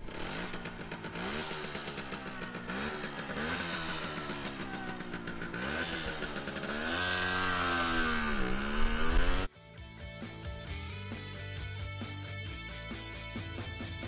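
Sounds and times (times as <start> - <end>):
moped engine pulling away: 0.0 - 9.5.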